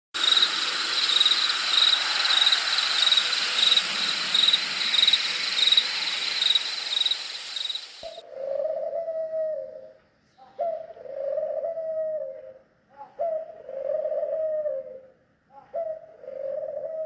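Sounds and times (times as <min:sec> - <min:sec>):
crickets chirping: 0:00.2 - 0:08.2
high-pitched hiss: 0:00.2 - 0:08.2.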